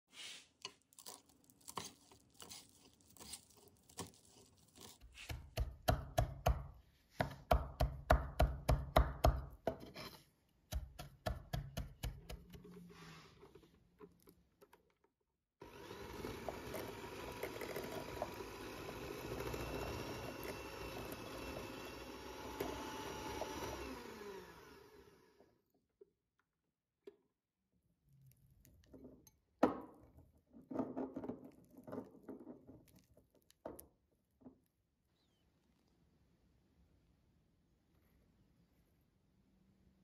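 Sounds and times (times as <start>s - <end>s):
electric hand mixer humming: 15.6s - 25.5s.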